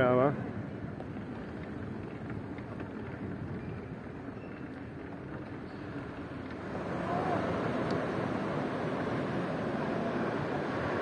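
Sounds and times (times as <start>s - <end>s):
wind: 0.0s - 11.0s
ocean surf: 6.6s - 11.0s.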